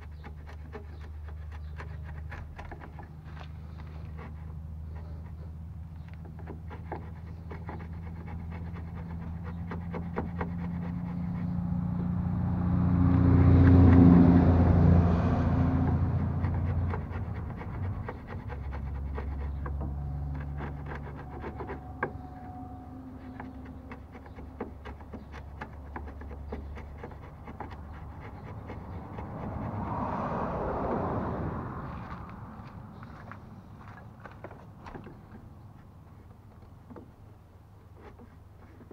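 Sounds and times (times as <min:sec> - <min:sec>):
chisel paring wood: 0:00.0 - 0:05.4, 0:06.1 - 0:11.4, 0:16.3 - 0:22.3, 0:23.2 - 0:29.4
low droning hum: 0:00.0 - 0:36.8.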